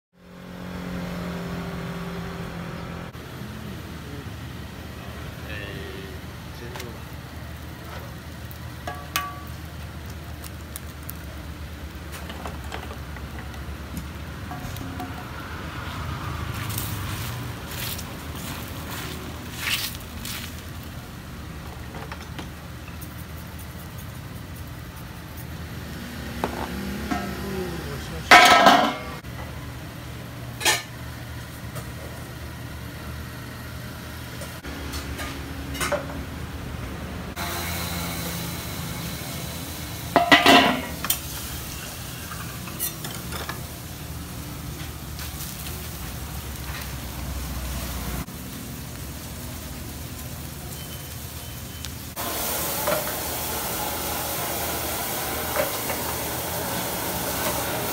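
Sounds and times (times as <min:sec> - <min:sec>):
metal cookware clattering: 0:28.3 - 0:29.2, 0:40.2 - 0:41.0.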